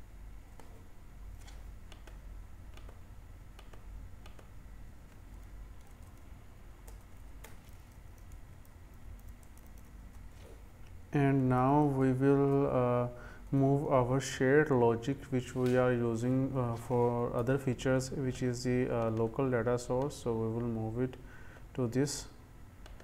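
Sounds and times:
low steady hum: 0.0 - 23.0
faint keyboard keystrokes: 5.1 - 11.0.

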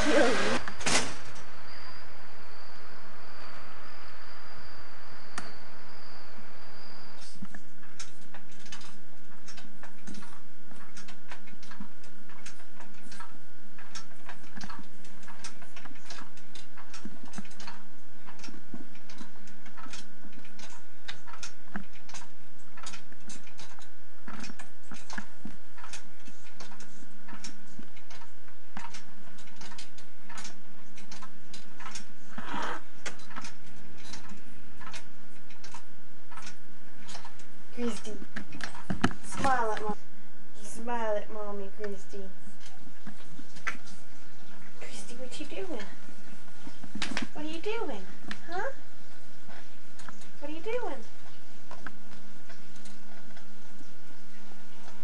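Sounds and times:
steady hiss: 0.0 - 7.4
baby swing clockwork ticking: 7.1 - 32.2, 33.0 - 40.0, 44.9 - 45.9, 46.9 - 48.8, 49.5 - 51.0.

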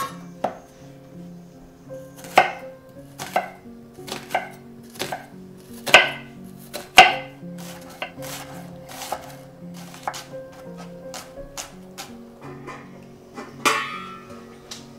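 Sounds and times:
knife cutting onion on wooden board: 2.2 - 2.6, 3.2 - 12.2.

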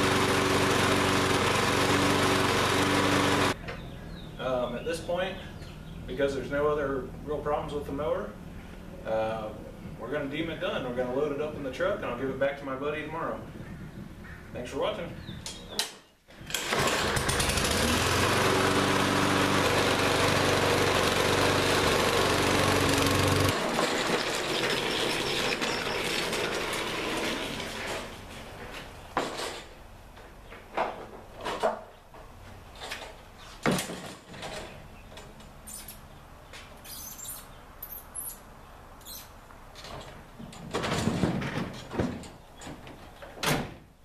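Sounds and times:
lawn mower engine running: 0.0 - 3.9, 16.3 - 29.5
mower knocking and clunking: 0.0 - 3.9, 16.3 - 29.7, 39.8 - 43.4.

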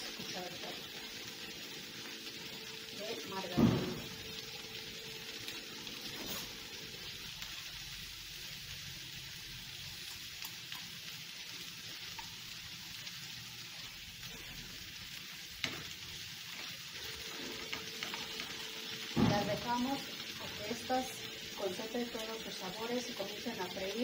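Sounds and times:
potatoes sizzling in a frying pan: 0.0 - 24.0
knock: 3.6 - 4.1.

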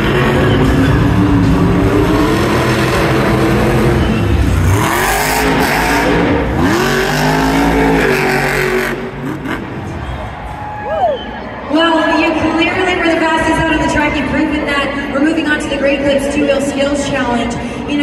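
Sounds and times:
monster truck engine revving: 0.0 - 10.6.

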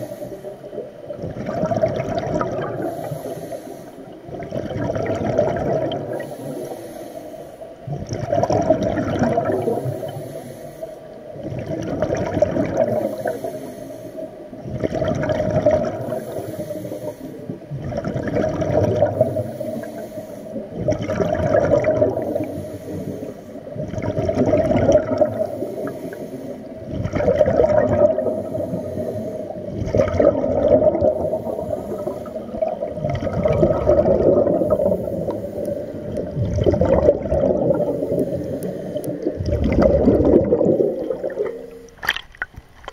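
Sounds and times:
underwater exhaled air bubbling: 0.0 - 42.9.

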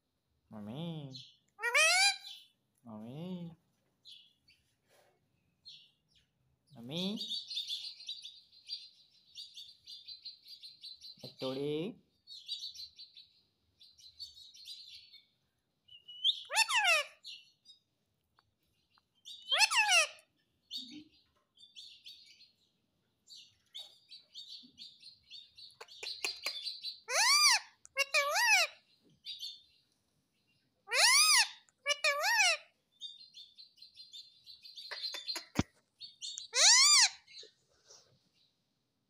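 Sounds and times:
parrot harsh calls: 1.6 - 2.4, 16.2 - 17.2, 19.5 - 20.2, 27.0 - 28.8, 30.9 - 32.7, 36.5 - 37.4
soft high chattering chirps: 23.3 - 29.7, 30.9 - 38.0.

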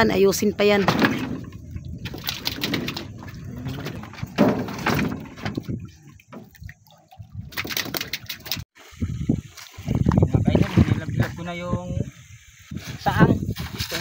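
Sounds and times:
water lapping against boat hull: 0.0 - 8.8.

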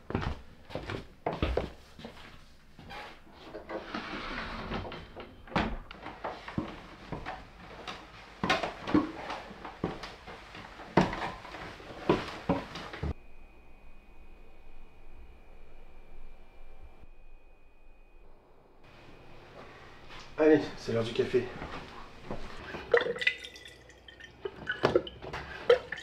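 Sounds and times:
booted footsteps on wooden stairs: 0.0 - 2.4, 5.8 - 13.2.

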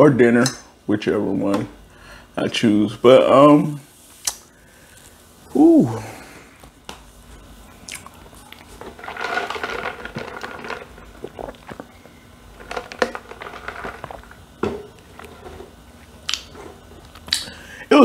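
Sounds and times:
tumbler handling and rustling: 8.2 - 15.8.

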